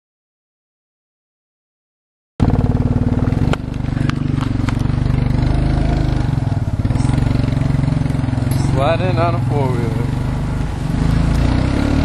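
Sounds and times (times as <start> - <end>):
atv engine running: 2.4 - 12.0.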